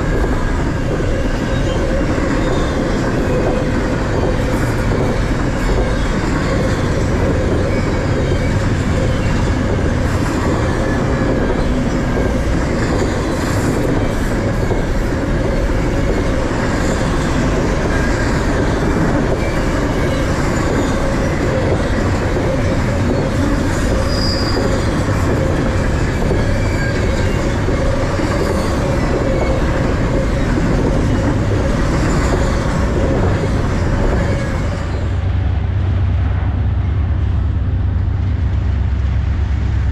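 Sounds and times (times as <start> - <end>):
freight train rumbling past: 0.0 - 39.9
sharp clacks of train: 0.0 - 39.9
wheels squealing: 19.4 - 35.2.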